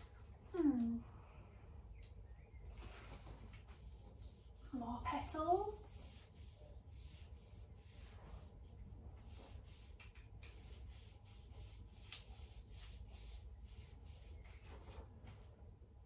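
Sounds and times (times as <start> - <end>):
paint roller rubbing on paper: 2.8 - 15.5.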